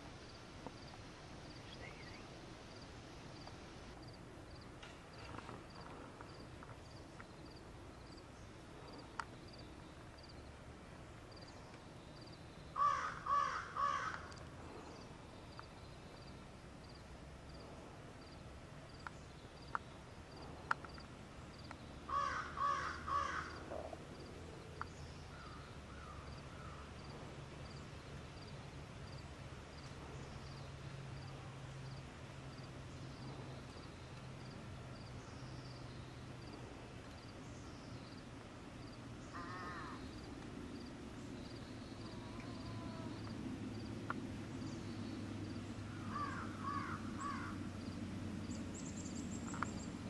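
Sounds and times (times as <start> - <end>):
bird cawing: 12.8 - 14.4, 22.1 - 23.9, 25.3 - 26.9, 39.3 - 40.1, 45.9 - 47.6.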